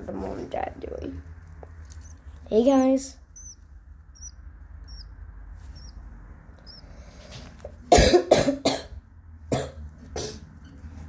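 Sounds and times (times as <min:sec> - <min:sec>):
budgerigar chirps: 0:02.0 - 0:06.0, 0:06.6 - 0:06.9
person coughing: 0:07.9 - 0:10.4.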